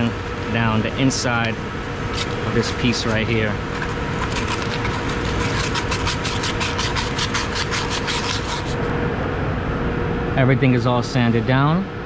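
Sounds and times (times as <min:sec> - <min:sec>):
machinery hum with steady tone: 0:00.0 - 0:12.0
scratchy sanding strokes: 0:02.2 - 0:08.9.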